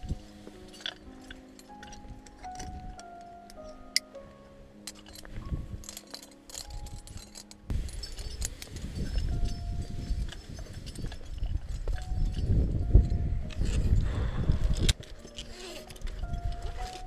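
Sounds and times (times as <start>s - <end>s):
climbing hardware clinking: 0.0s - 4.2s, 4.8s - 14.0s, 14.7s - 17.0s
wind buffeting microphone: 5.3s - 6.0s, 6.7s - 15.3s.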